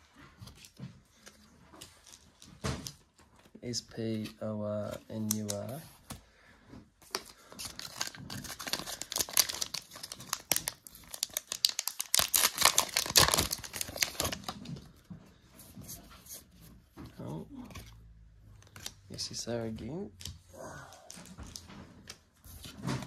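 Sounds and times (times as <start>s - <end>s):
foil pack crinkling and tearing: 7.3s - 14.8s.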